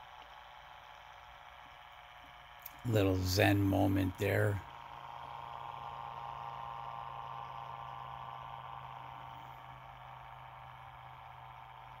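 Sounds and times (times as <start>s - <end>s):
pulse motor humming: 0.0s - 12.0s.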